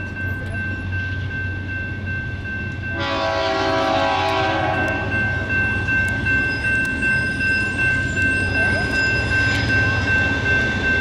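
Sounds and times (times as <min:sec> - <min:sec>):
crossing bell ringing: 0:00.0 - 0:11.0
train air horn: 0:03.0 - 0:05.1.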